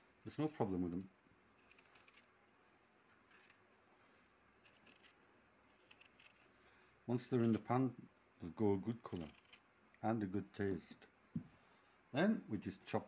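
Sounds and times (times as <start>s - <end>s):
peeler scraping apple skin: 1.6s - 2.3s, 3.2s - 3.6s, 4.6s - 6.5s, 7.3s - 7.7s, 9.0s - 9.6s.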